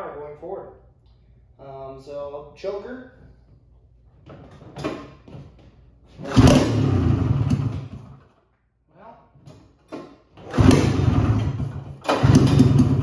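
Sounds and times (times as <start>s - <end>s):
snowmobile engine starting and running: 6.1s - 8.2s, 10.4s - 13.0s.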